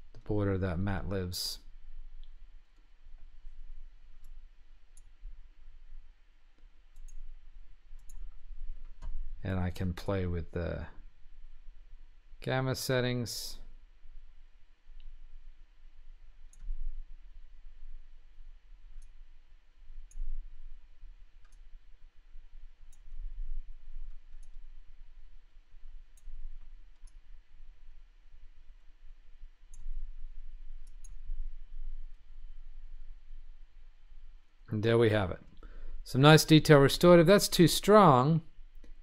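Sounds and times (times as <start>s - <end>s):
faint low rumble: 0.0s - 39.0s
computer mouse clicking: 6.6s - 9.2s, 16.4s - 16.8s, 18.9s - 19.2s, 21.4s - 21.7s, 22.8s - 23.3s, 24.0s - 24.7s, 26.1s - 27.2s, 29.7s - 30.0s, 30.8s - 31.3s.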